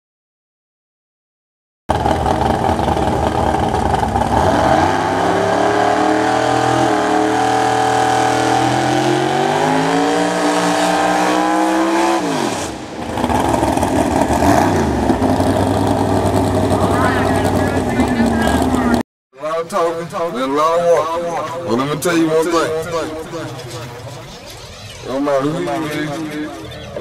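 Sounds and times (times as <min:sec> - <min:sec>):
car engine revving high: 0:01.9 - 0:19.0.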